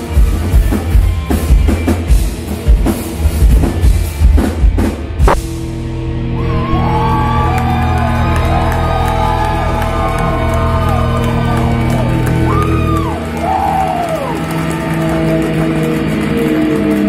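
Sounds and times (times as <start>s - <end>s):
live band holding a chord: 0.0s - 17.0s
deep low drone: 5.3s - 17.0s
crowd whooping and yelling: 6.2s - 17.0s.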